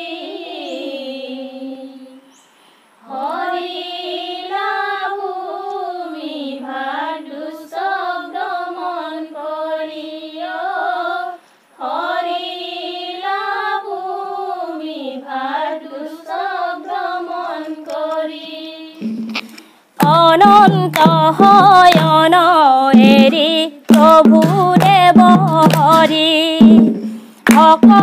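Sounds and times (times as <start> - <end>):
women singing unaccompanied: 0.0 - 2.4, 3.0 - 19.2, 20.0 - 28.0.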